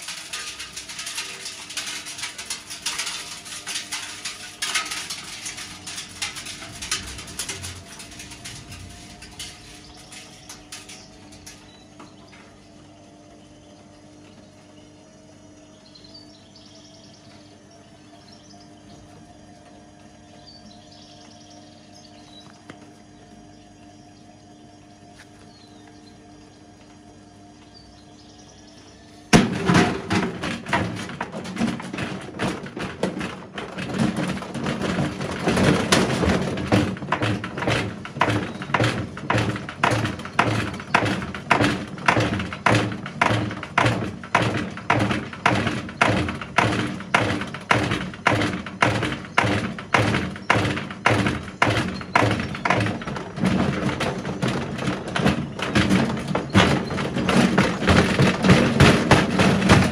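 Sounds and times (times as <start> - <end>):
stone banging in washing machine drum: 0.0 - 11.8, 29.3 - 59.9
washing machine motor hum: 0.0 - 59.9.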